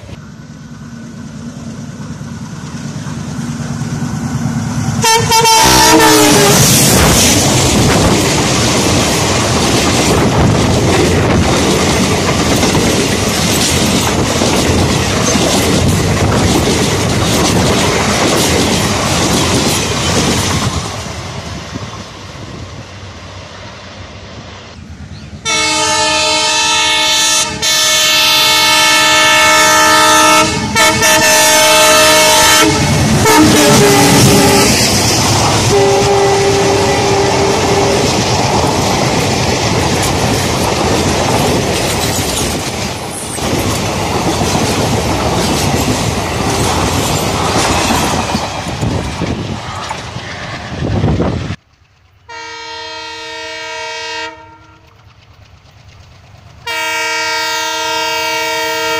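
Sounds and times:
diesel locomotive horn: 0:05.0 - 0:07.0, 0:25.4 - 0:34.9, 0:35.6 - 0:38.1, 0:52.3 - 0:55.0, 0:56.6 - 0:58.9
train wheels clattering over rail joints: 0:06.8 - 0:22.1, 0:37.3 - 0:52.3, 0:54.6 - 0:57.2.

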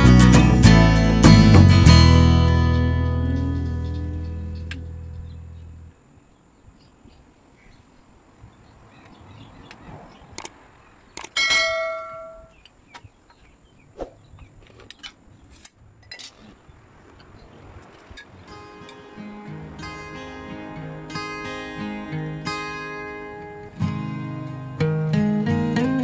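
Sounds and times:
ringing metallic clang: 0:11.2 - 0:12.6.

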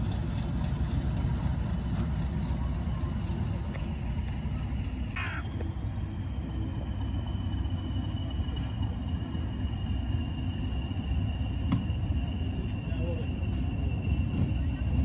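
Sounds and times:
locomotive engine rumbling: 0:00.0 - 0:15.0
high whine: 0:04.4 - 0:14.8
crow cawing: 0:05.2 - 0:05.8.

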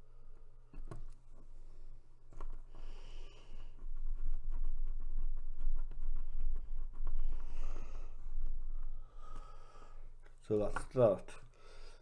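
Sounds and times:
faint scratching and clicks: 0:00.2 - 0:11.6
breath near microphone: 0:02.7 - 0:03.8, 0:07.2 - 0:10.2, 0:11.4 - 0:12.0.

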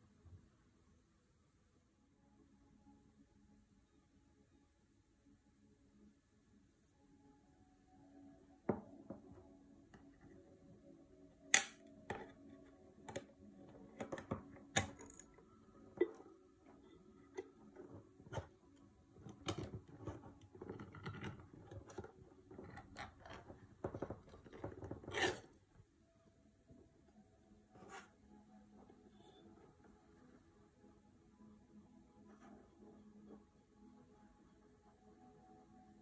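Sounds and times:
tin lid tearing open: 0:24.6 - 0:25.5.

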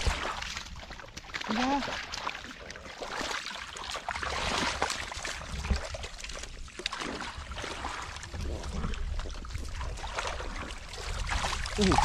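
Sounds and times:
splashing of muddy water: 0:00.0 - 0:12.0.

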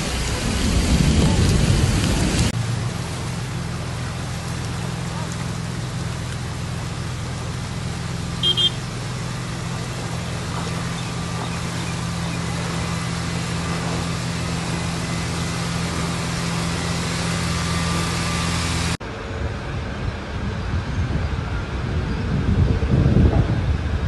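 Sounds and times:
vehicle engine running: 0:00.0 - 0:23.6
short high beeps: 0:08.4 - 0:08.8.

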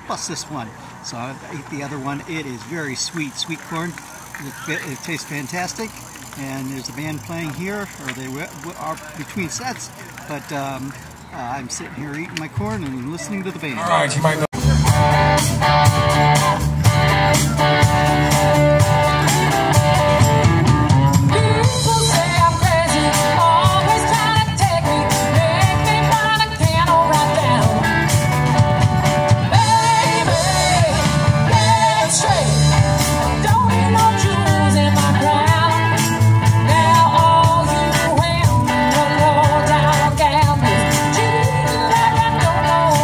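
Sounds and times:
live band playing: 0:13.8 - 0:43.0
person singing: 0:36.6 - 0:43.0.

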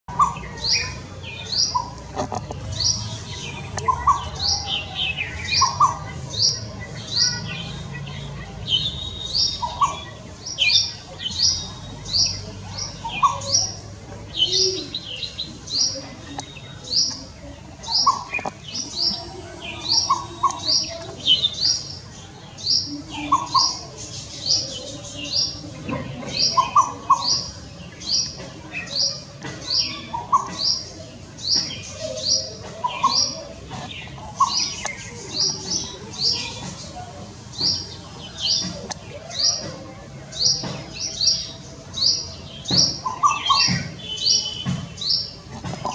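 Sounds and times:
lower bird calls: 0:00.1 - 0:25.7
high-pitched bird calls: 0:00.1 - 0:45.9.

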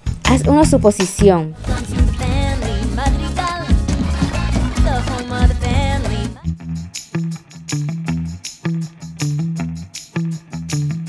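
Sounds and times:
bass line: 0:00.0 - 0:00.9, 0:01.6 - 0:07.0
plucked guitar notes: 0:03.0 - 0:11.0.

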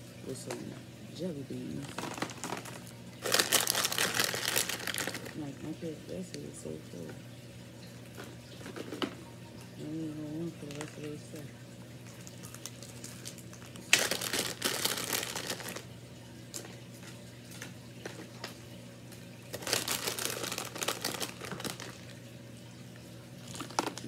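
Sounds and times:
plastic packaging crumpling: 0:01.7 - 0:05.4, 0:10.6 - 0:11.1, 0:12.2 - 0:15.9, 0:19.4 - 0:22.3, 0:23.4 - 0:24.0.

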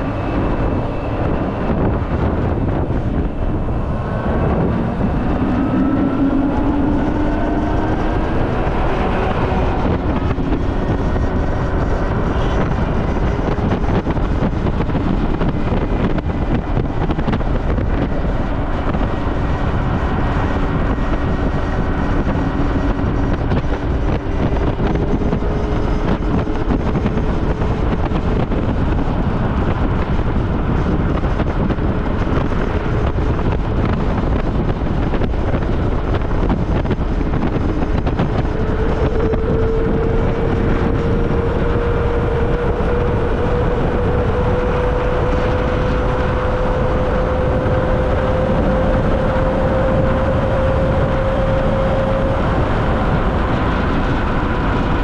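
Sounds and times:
wind rushing over microphone: 0:00.0 - 0:55.0.

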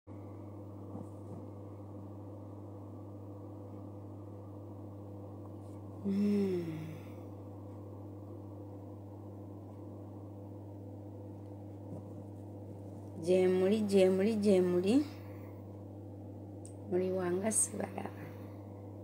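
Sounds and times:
low electrical hum: 0:00.1 - 0:19.0
woman humming mm: 0:06.0 - 0:07.3.

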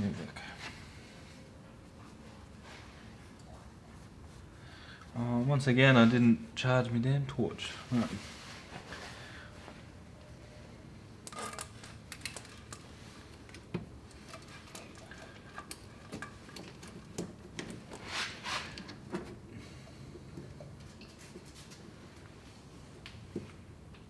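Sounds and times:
low steady hum: 0:00.0 - 0:24.0
clicks and rattles of small parts: 0:11.2 - 0:18.0.

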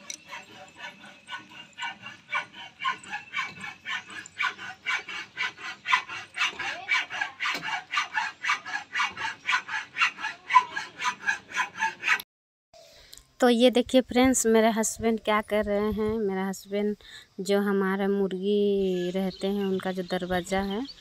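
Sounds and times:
hacksaw sawing through metal: 0:00.0 - 0:12.2.

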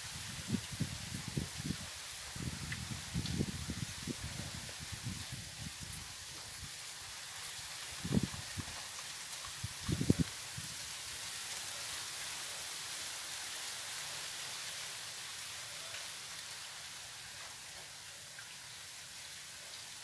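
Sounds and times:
outdoor background hiss: 0:00.0 - 0:20.0.

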